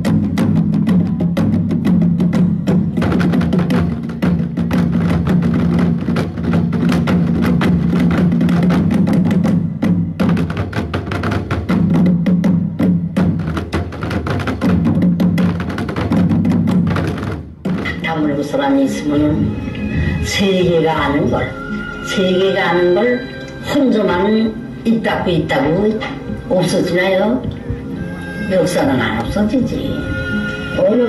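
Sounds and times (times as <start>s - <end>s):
rapid drum and wood block strikes: 0.0s - 18.4s.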